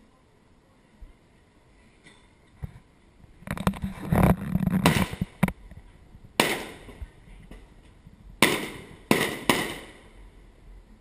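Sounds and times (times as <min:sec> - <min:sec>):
fireworks bangs and crackle: 0:04.0 - 0:05.6, 0:06.4 - 0:07.1, 0:08.4 - 0:10.2.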